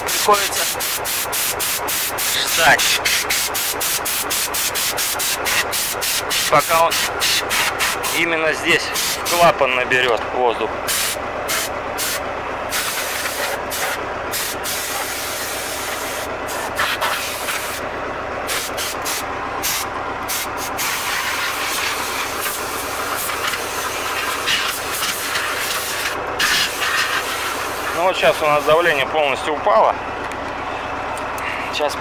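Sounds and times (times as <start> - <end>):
compressed air blow gun hissing: 0.6 - 8.1, 8.9 - 9.3, 10.9 - 17.8, 18.5 - 28.0.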